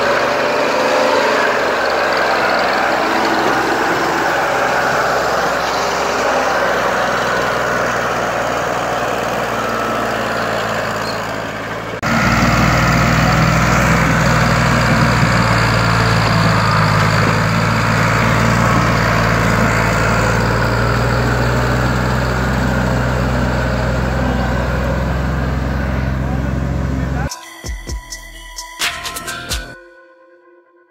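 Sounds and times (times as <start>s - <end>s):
tractor diesel engine under load: 0.0s - 27.3s.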